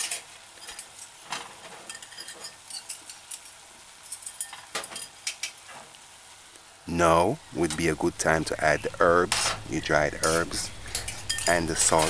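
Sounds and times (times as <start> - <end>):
clicks and pops of frying: 0.0 - 6.7, 9.2 - 12.0
chicken sizzling in a saucepan: 0.0 - 12.0.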